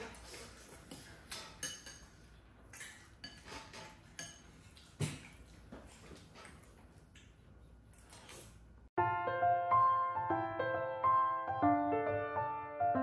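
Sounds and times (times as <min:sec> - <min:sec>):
spoons clinking against bowls: 0:01.0 - 0:04.6.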